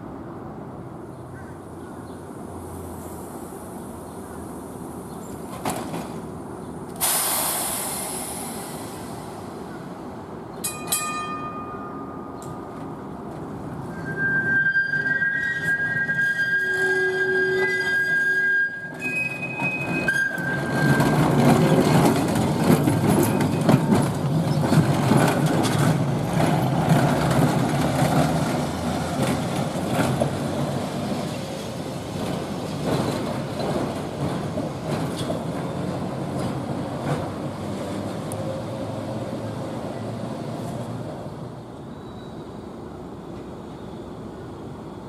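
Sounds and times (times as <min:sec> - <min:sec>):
streetcar rumbling on track: 0:00.0 - 0:45.0
wheels clicking over rail joints: 0:16.5 - 0:39.0.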